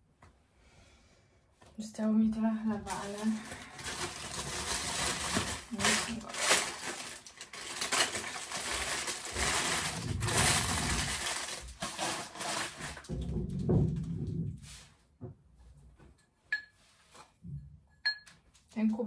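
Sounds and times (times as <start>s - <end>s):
paper bag crinkling: 2.8s - 13.2s.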